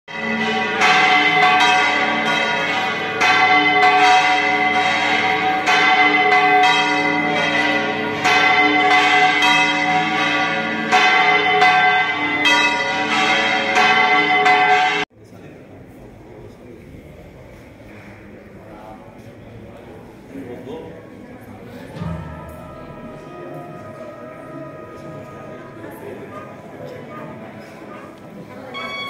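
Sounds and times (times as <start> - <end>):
church bells ringing: 0.1 - 15.1, 22.0 - 29.0.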